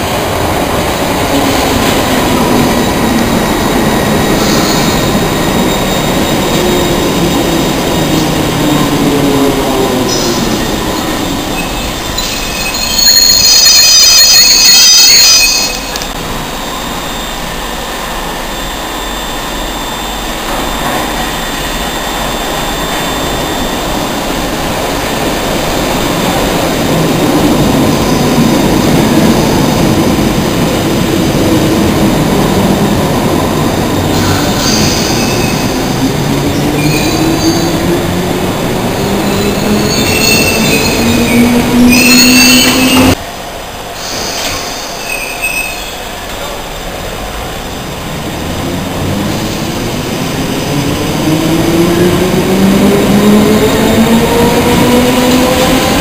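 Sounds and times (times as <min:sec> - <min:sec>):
train wheel squeal: 0:00.0 - 0:25.4, 0:33.8 - 0:43.2, 0:44.0 - 0:46.6
train rumble: 0:00.0 - 0:56.0.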